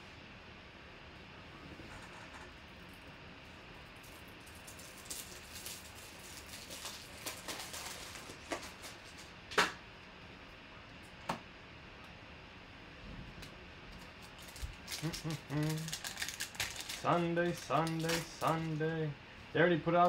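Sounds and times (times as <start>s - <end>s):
cards clicking and rustling: 14.3s - 18.8s.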